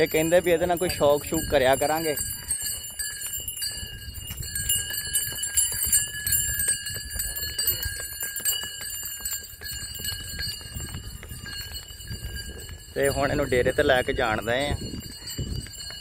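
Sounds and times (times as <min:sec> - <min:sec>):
bells jingling: 0:00.0 - 0:16.0
hooves clopping: 0:00.0 - 0:16.0.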